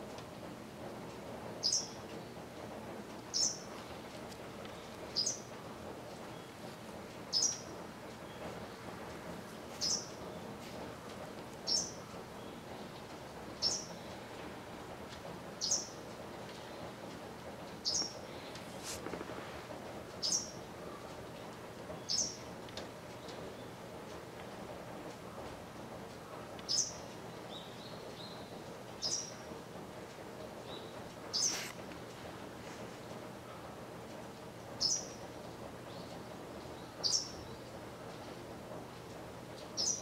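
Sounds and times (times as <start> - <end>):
wagtail calling: 1.6 - 2.0, 3.3 - 3.7, 4.8 - 5.5, 7.3 - 8.8, 9.8 - 10.5, 11.6 - 12.6, 13.6 - 14.2, 15.6 - 16.0, 17.8 - 18.5, 20.2 - 21.0, 22.0 - 22.4, 26.7 - 29.4, 30.6 - 31.8, 34.8 - 35.2, 35.9 - 37.7, 39.8 - 40.0.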